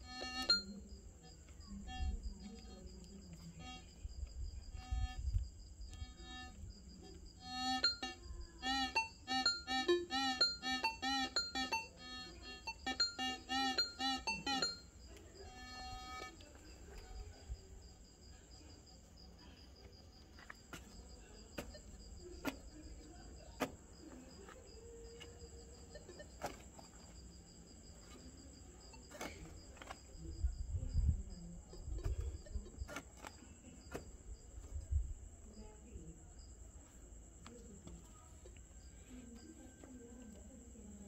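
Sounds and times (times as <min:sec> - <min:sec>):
metal detector warbling beep: 0:00.0 - 0:00.7, 0:07.5 - 0:14.9
crickets chirping: 0:00.0 - 0:41.0.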